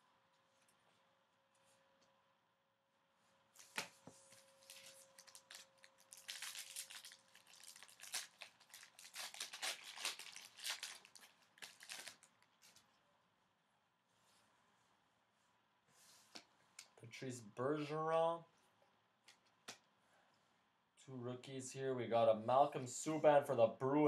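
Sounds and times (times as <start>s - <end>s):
foil wrapper crinkling: 3.6s - 12.9s
foil wrapper tearing: 4.4s - 12.8s.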